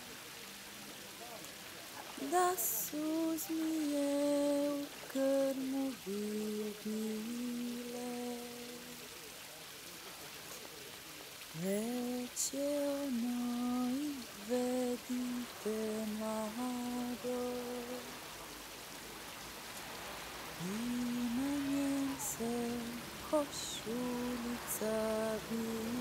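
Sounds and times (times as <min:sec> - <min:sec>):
fountain water splashing: 0:00.0 - 0:26.0
woman humming: 0:20.6 - 0:26.0.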